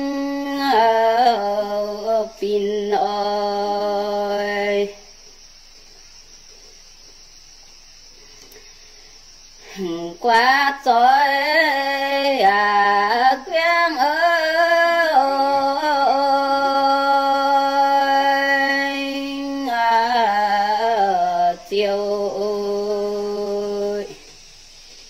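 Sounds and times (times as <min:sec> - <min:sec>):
woman singing unaccompanied: 0:00.0 - 0:05.1, 0:09.6 - 0:24.4.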